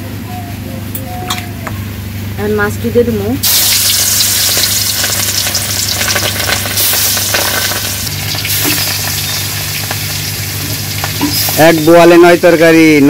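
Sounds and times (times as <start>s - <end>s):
fish sizzling in hot oil: 3.4s - 12.6s.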